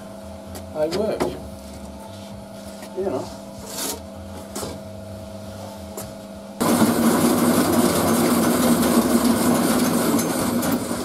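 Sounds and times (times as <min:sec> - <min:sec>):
power tool motor running: 0:06.6 - 0:11.0.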